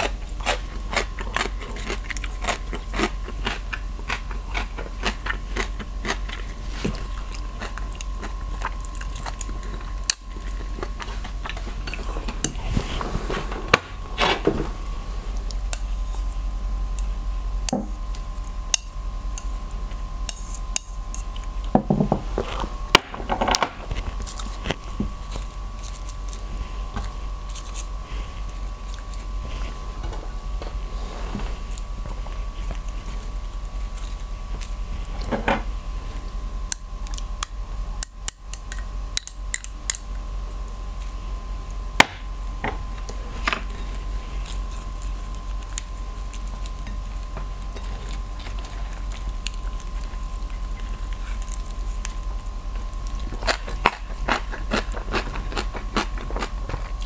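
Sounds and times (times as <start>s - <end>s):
steady thin hum: 0.0s - 57.0s
lettuce leaves crinkling: 23.8s - 29.8s.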